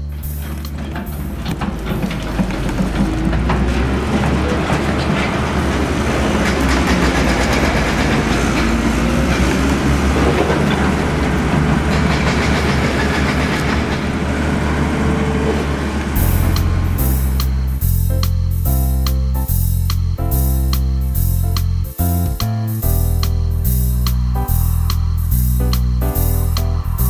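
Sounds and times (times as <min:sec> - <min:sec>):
mechanical rumbling with clatter: 0:00.0 - 0:18.3
guitar music: 0:16.2 - 0:27.0.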